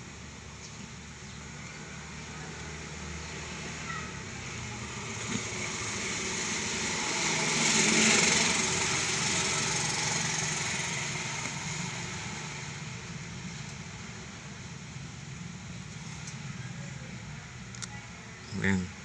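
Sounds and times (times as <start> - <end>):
passing vehicle engine: 1.4 - 17.3.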